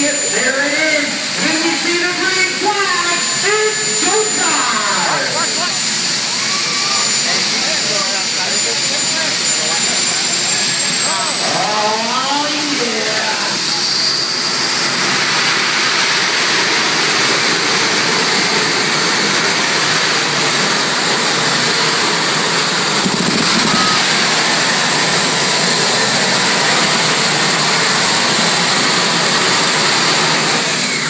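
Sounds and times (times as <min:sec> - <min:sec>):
tractor engine running at high revs: 0:07.1 - 0:31.0.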